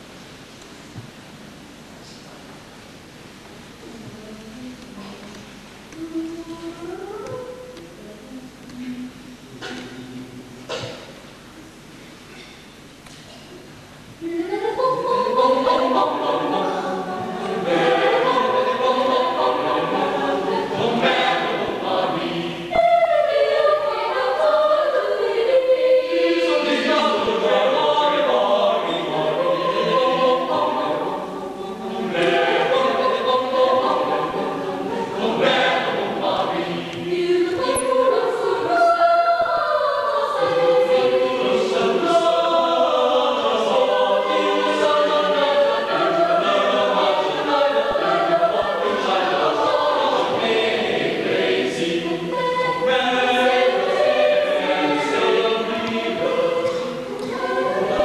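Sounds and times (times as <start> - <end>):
choir singing in parts: 14.2 - 58.0.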